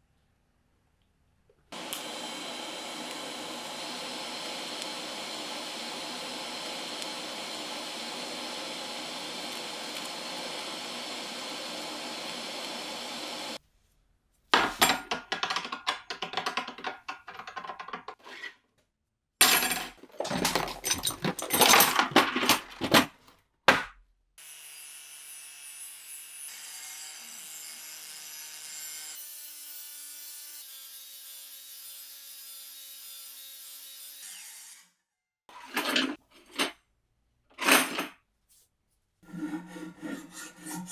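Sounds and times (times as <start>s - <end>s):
angle grinder on steel: 1.8s - 13.6s, 39.2s - 40.9s
arc welding hiss: 1.8s - 13.6s
metal scraping and rubbing: 39.2s - 40.9s.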